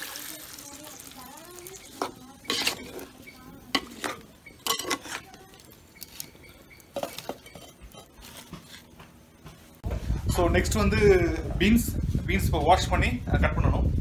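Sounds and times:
wooden spoon scraping clay pot: 1.8s - 9.8s.

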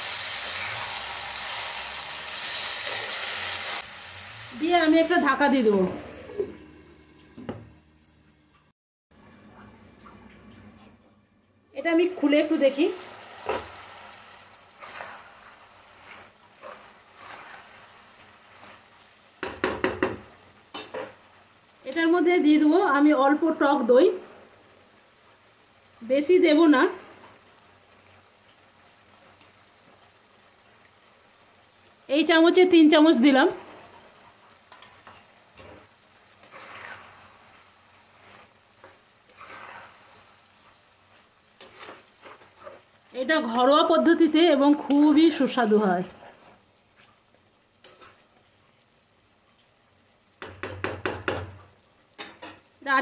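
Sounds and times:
food sizzling in a pan: 0.0s - 7.6s, 11.8s - 53.0s
spoon knocking against pan: 19.4s - 21.1s, 50.4s - 51.6s
metal utensil scraping pan: 34.7s - 37.5s, 38.2s - 40.3s, 41.6s - 43.7s.

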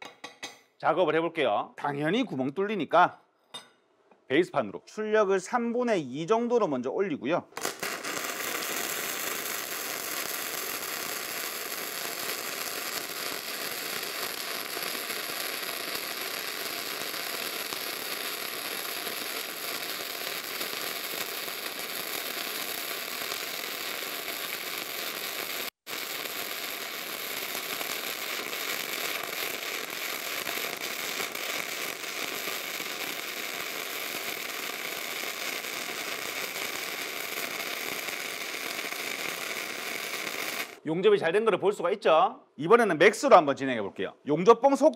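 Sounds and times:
welding arc crackling: 7.6s - 40.8s.

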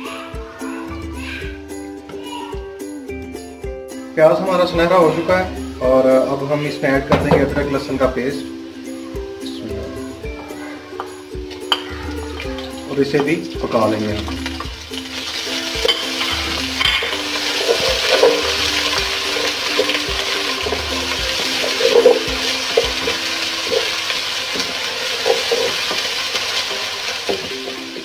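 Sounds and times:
onions sizzling in hot oil: 3.4s - 28.0s
wooden spatula scraping pot: 15.0s - 24.0s.

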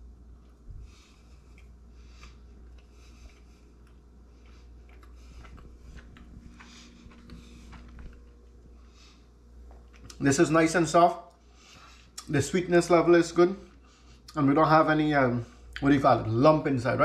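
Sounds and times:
low room hum: 0.0s - 17.0s
person chewing mouth clicks: 1.4s - 8.4s, 9.6s - 10.2s, 12.1s - 12.3s.

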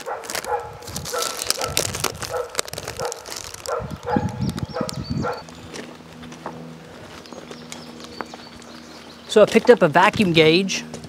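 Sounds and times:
dog barking: 0.0s - 5.4s
paper packaging rustling: 0.0s - 5.6s
low hum: 0.4s - 11.0s.

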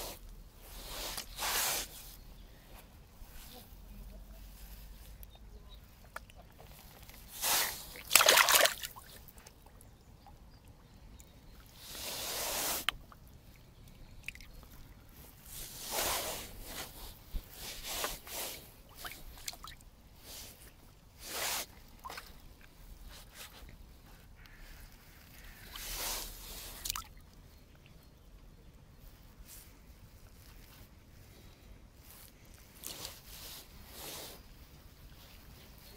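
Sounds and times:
fish splashing in shallow water: 6.0s - 9.7s.

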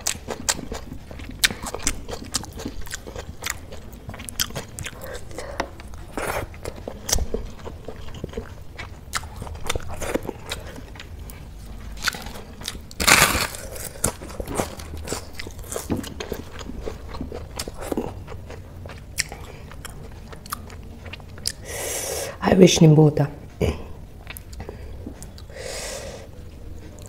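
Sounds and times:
person chewing food: 0.0s - 22.2s, 23.9s - 27.0s
crisp papad crunching: 12.0s - 15.7s.

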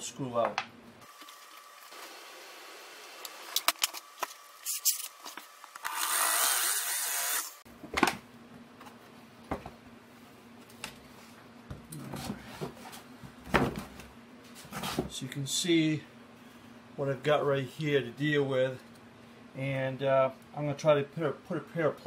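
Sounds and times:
power drill grinding screw: 5.8s - 7.6s.

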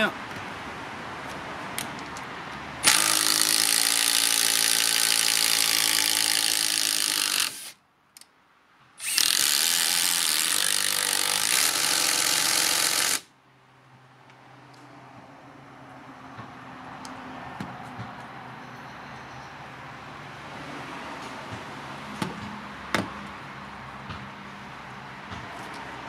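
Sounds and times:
impact driver hammering screw into wood: 2.8s - 7.8s, 9.0s - 13.2s.

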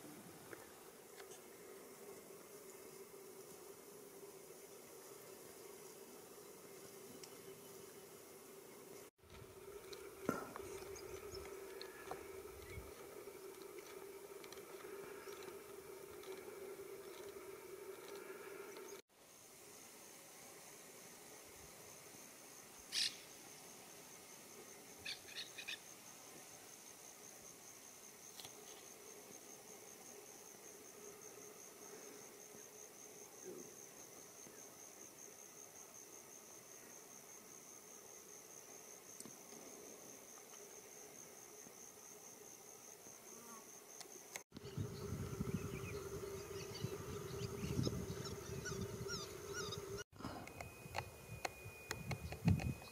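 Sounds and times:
insect trill: 0.7s - 52.9s
quick chirping calls: 45.6s - 50.0s.

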